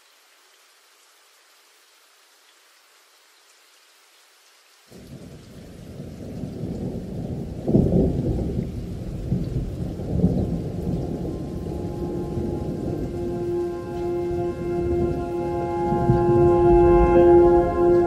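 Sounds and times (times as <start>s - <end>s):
rolling thunder: 5.0s - 18.0s
held music notes: 11.0s - 18.0s.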